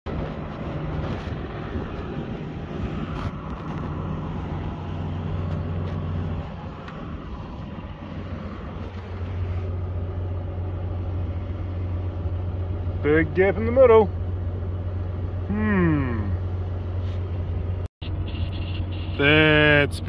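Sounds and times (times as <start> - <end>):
tractor engine running: 0.1 - 15.6.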